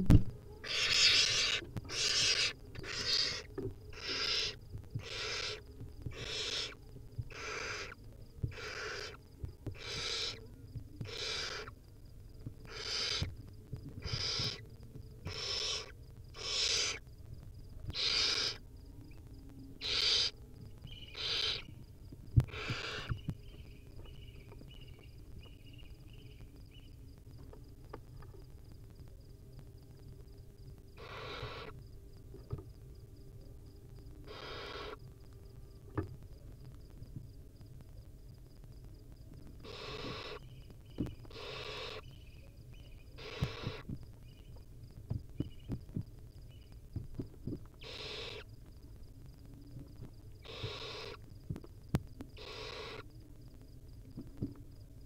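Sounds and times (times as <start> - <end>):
owl chick rasping hisses: 0.6 - 9.2, 9.8 - 10.4, 11.0 - 11.8, 12.6 - 13.3, 14.0 - 14.6, 15.3 - 17.0, 17.9 - 18.6, 19.8 - 20.4, 21.1 - 21.6, 22.5 - 23.2, 31.0 - 31.7, 34.3 - 35.0, 39.6 - 40.4, 41.3 - 42.1, 43.2 - 43.9, 47.8 - 48.5, 50.4 - 51.2, 52.4 - 53.1.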